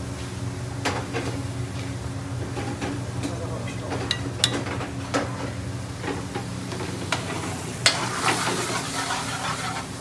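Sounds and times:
metal spoon clinking on plate: 4.1s - 4.7s
curry sizzling and being stirred: 7.9s - 10.0s.

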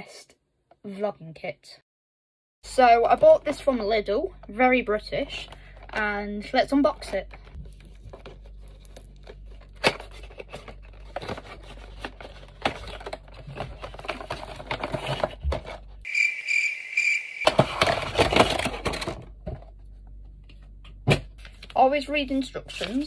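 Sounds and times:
packaging crinkling and tearing: 7.6s - 15.7s
cardboard packaging opened by hand: 7.6s - 15.8s.

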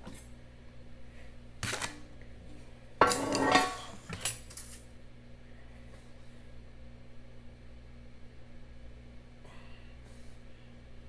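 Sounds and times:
metal utensils clinking: 3.0s - 4.8s.

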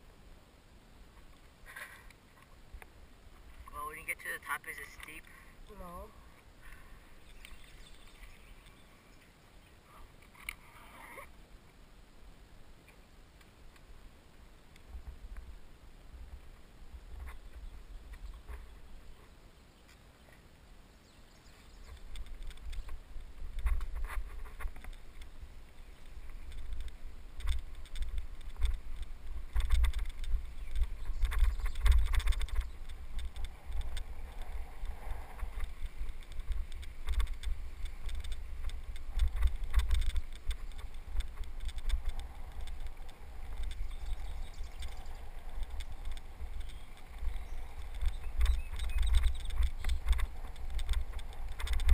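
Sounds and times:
bicycle rolling over dirt trail: 4.8s - 11.4s, 21.3s - 51.9s.

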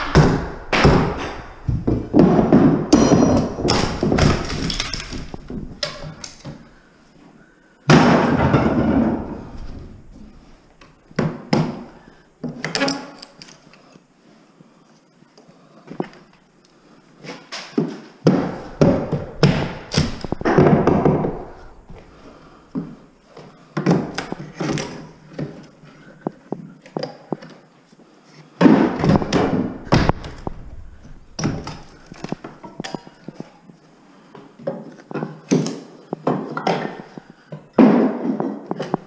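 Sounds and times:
heavy wooden thuds and knocks: 0.0s - 6.6s, 7.9s - 10.4s, 18.2s - 23.0s, 28.6s - 33.0s.

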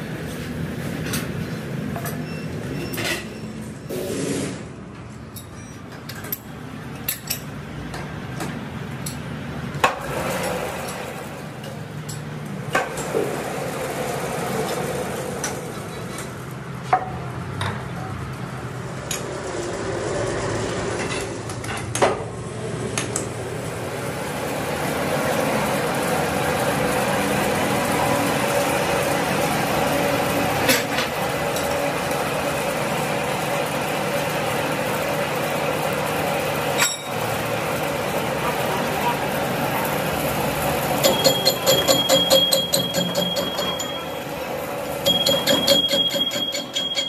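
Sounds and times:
metallic knocks on steel: 41.0s - 44.0s, 45.0s - 47.0s.

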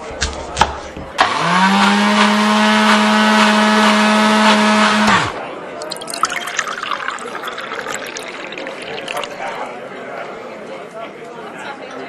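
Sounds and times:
electric blender running: 1.2s - 5.4s.

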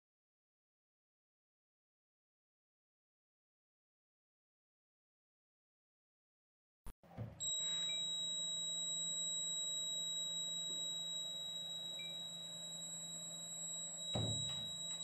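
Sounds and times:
door shutting thud: 7.1s - 7.4s, 14.1s - 14.8s
high-pitched alarm buzzer tone: 7.4s - 15.0s.

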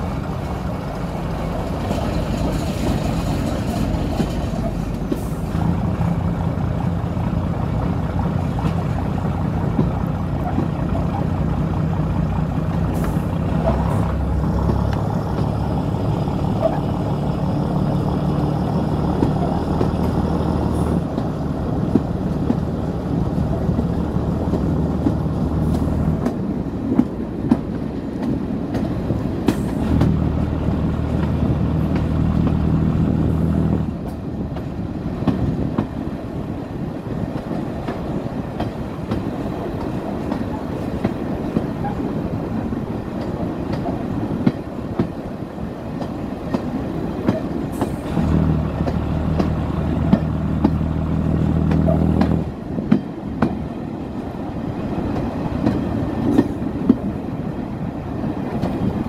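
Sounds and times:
diesel train running: 0.0s - 59.0s
wheels clicking over rail joints: 0.0s - 59.0s.

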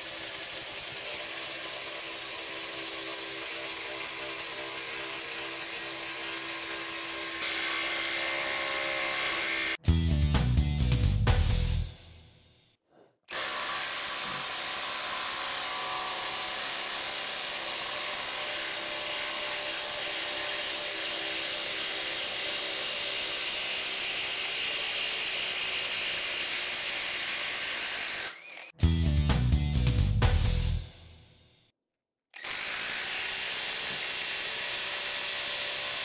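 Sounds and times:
music: 9.6s - 12.8s, 28.8s - 31.7s
impact driver hammering: 13.3s - 15.0s.

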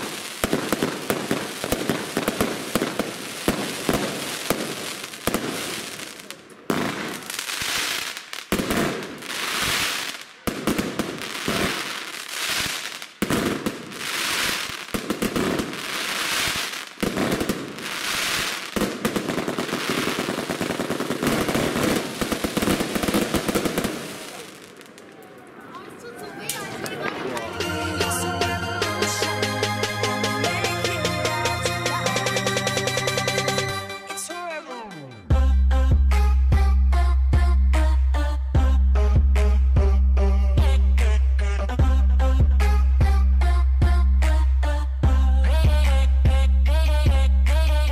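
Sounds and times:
crackling firework stars: 0.0s - 27.5s.

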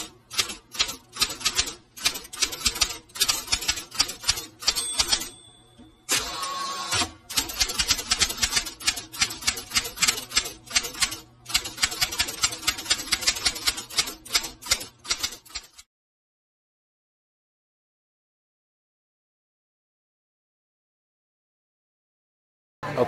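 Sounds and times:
typing keys clacking: 0.0s - 5.4s.

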